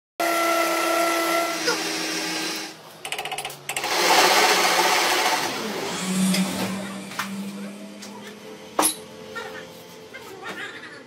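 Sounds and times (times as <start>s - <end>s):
steady machine whine: 1.4s - 10.2s.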